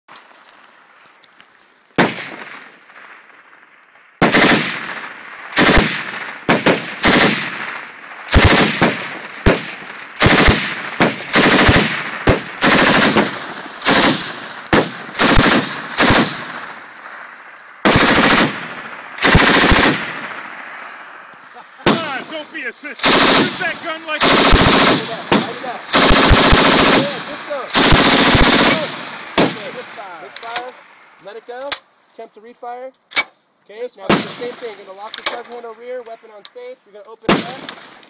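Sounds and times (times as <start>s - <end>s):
machine gun firing: 4.2s - 16.8s, 17.8s - 20.5s, 21.8s - 22.4s, 23.0s - 29.8s, 37.3s - 38.0s.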